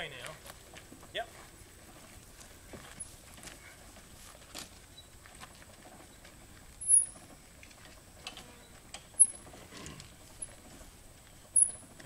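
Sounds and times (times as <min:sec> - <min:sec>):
jack crank squeaking: 0:06.8 - 0:07.4, 0:11.4 - 0:12.0.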